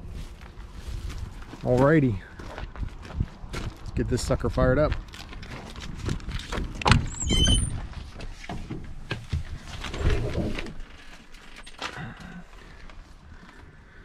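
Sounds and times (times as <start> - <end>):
knocks and thuds of climbing: 5.3 - 12.4
door hinge squealing: 6.9 - 7.8.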